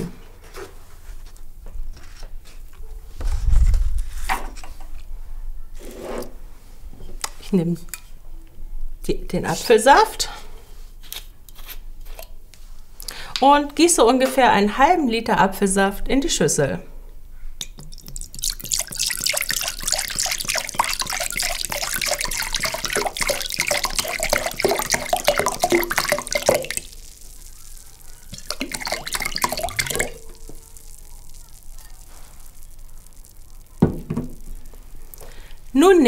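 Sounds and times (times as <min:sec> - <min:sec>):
juice pouring into bowl: 0:17.6 - 0:35.8.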